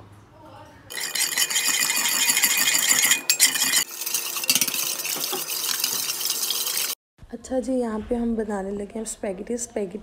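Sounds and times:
metal spoon scraping steel pot: 0:00.9 - 0:07.0.

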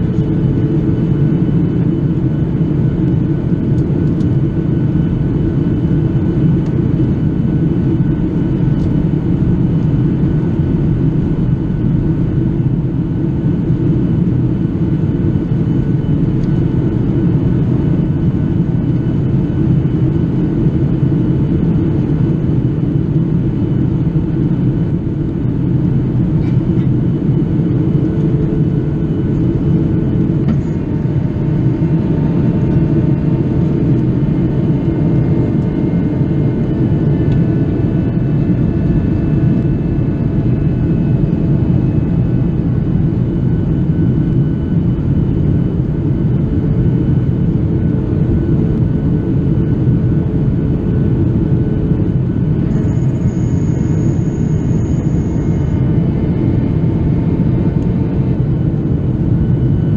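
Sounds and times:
airplane cabin roar: 0:00.0 - 0:59.9
faint steady hum: 0:48.1 - 0:59.8.

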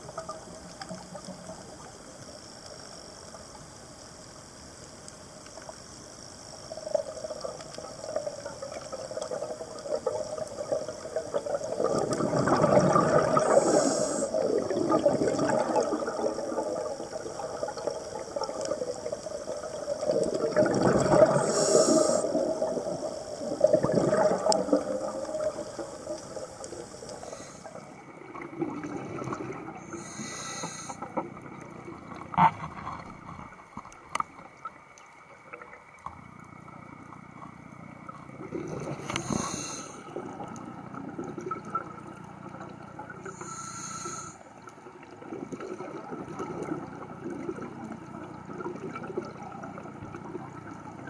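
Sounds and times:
steady hum: 0:00.0 - 0:44.8
exhaled bubbles rushing: 0:06.7 - 0:30.0, 0:34.4 - 0:43.4, 0:44.8 - 0:51.0
regulator inhale hiss: 0:13.1 - 0:15.9, 0:21.2 - 0:23.7, 0:24.4 - 0:28.0, 0:29.8 - 0:31.2, 0:39.0 - 0:40.2, 0:43.2 - 0:44.7.

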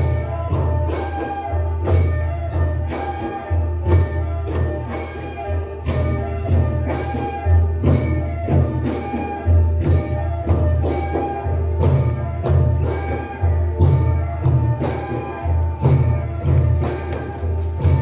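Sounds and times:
bamboo flute melody: 0:00.0 - 0:18.0.

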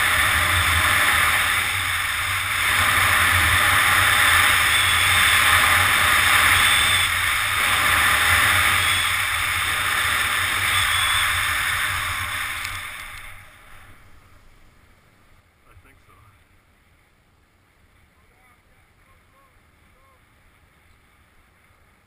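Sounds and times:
snowboard sliding over snow: 0:00.0 - 0:14.2.

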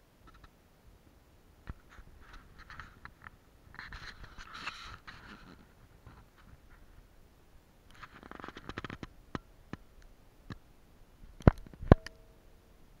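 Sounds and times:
clicks: 0:11.4 - 0:12.2.

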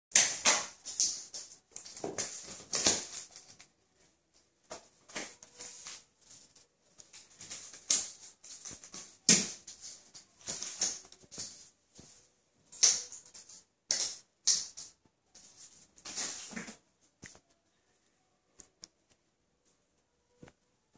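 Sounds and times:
claws scrabbling on vinyl: 0:00.2 - 0:03.8, 0:04.6 - 0:17.6
cat paws pattering and scuffing: 0:00.4 - 0:17.6.

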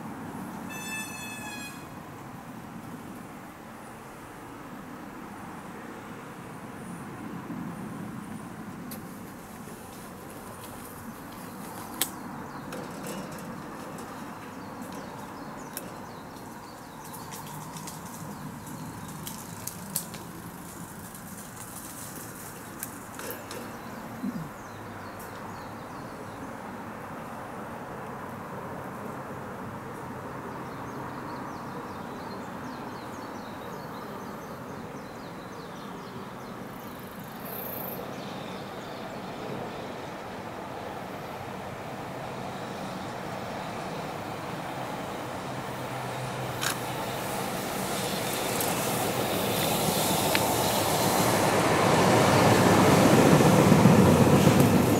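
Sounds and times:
outdoor background noise: 0:00.0 - 0:54.9
outdoor hum: 0:07.8 - 0:26.0
distant freight train rumble: 0:38.6 - 0:54.9.

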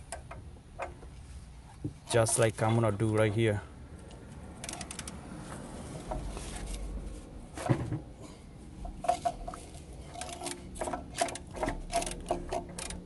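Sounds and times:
ratchet clicking: 0:04.6 - 0:05.2, 0:10.1 - 0:13.0.

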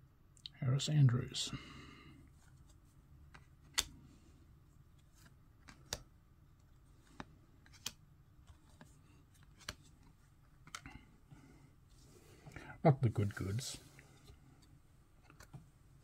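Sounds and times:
trading cards clicking: 0:02.6 - 0:04.0, 0:05.2 - 0:06.1, 0:07.0 - 0:10.0.

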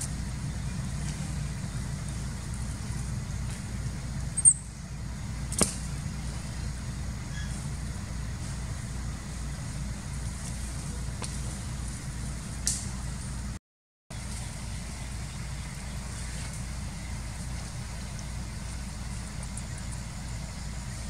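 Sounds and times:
steady low rumble: 0:00.0 - 0:21.0.

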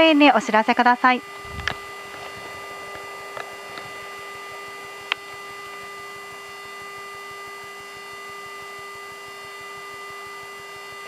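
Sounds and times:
airliner cabin hum: 0:01.2 - 0:07.6.

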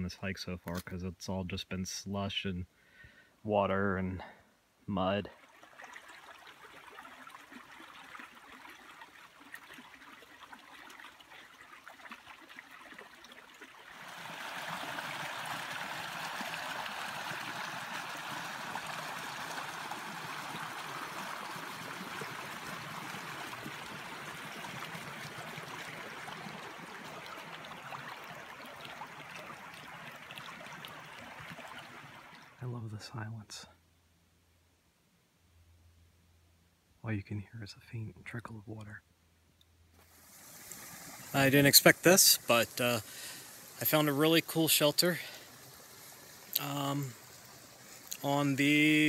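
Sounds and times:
stream trickling over rocks: 0:05.1 - 0:32.8, 0:40.0 - 0:49.0.

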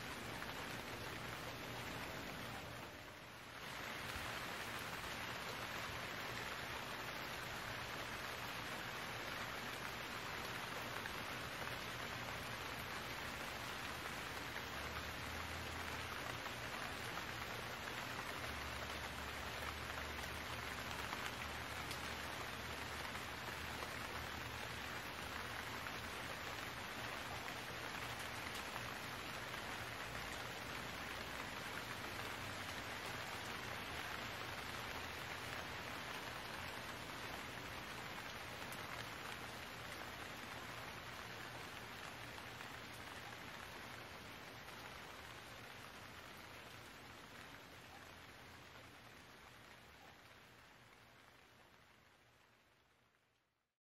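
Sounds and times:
rain falling: 0:00.0 - 0:53.7.

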